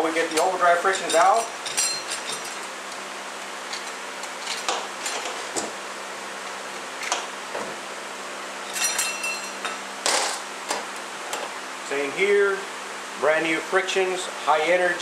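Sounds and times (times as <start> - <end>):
steady low hum: 0.0 - 15.0
metal plates clinking: 0.9 - 2.7, 8.7 - 10.4.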